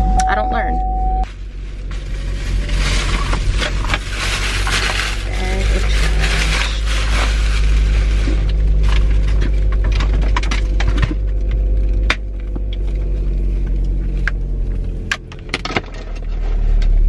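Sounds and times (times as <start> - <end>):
steady low hum: 0.0 - 17.0
plastic bag rustling: 1.2 - 11.9.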